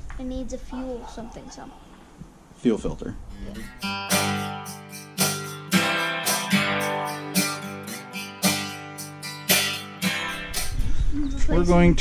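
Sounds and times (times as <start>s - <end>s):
strummed acoustic guitar chords: 3.4s - 11.0s.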